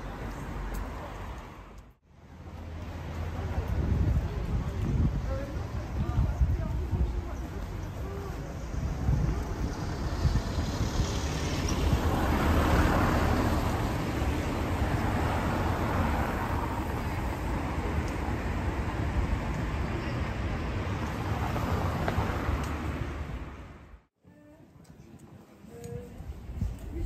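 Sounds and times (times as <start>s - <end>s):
road traffic rumble: 0.0s - 24.1s
vehicle passing: 9.1s - 19.4s.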